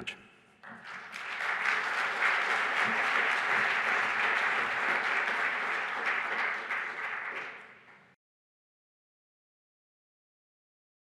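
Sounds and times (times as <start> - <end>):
audience applauding: 0.6 - 8.2.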